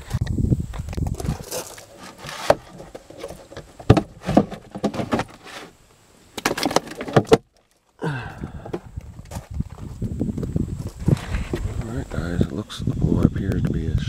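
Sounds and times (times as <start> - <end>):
rustling: 0.0 - 8.0
plastic items clacking: 1.0 - 5.7, 6.4 - 7.9.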